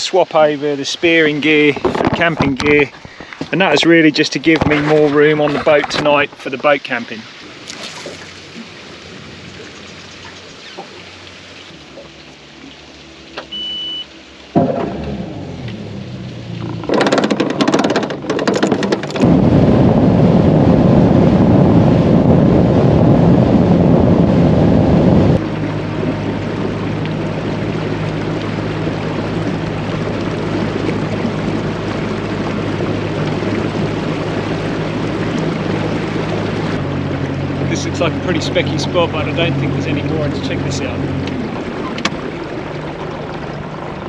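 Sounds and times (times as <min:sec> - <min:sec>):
outboard engine running: 0:00.0 - 0:44.0
water rushing: 0:00.0 - 0:44.0
wind: 0:00.0 - 0:44.0
short high beep: 0:13.5 - 0:14.1.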